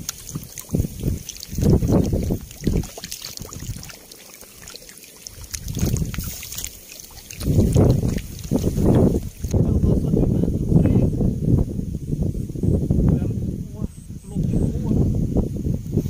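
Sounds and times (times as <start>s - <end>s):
fish splashing in shallow water: 0.0s - 9.6s.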